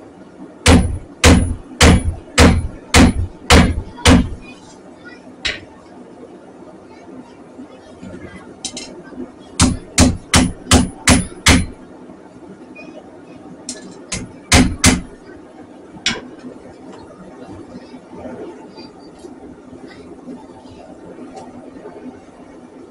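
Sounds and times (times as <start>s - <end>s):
hammer striking steel on anvil: 9.6s - 11.8s, 16.1s - 16.3s.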